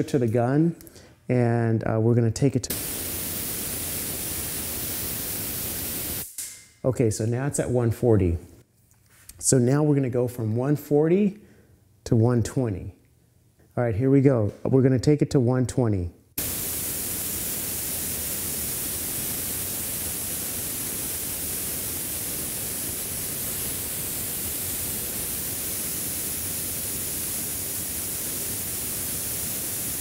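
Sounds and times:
compressed air hissing from spray gun: 2.7 - 6.3, 16.4 - 30.0.

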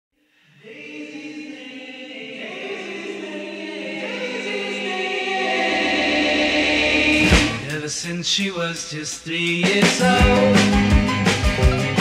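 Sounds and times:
sustained choir-like chords: 0.5 - 7.7.

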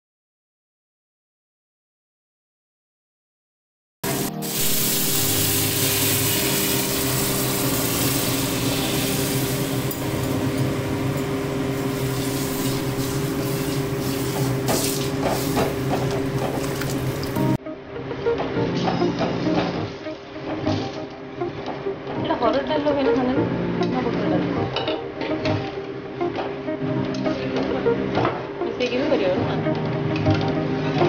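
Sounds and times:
food sizzling in a pan: 4.1 - 16.0.

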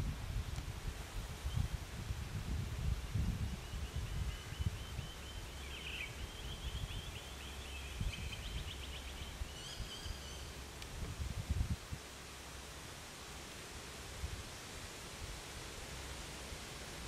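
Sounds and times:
higher bird chirps: 3.6 - 10.6.

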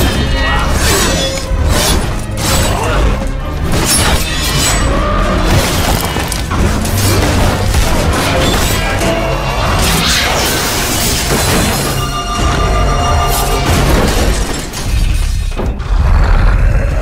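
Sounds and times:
film score music: 0.0 - 17.0.

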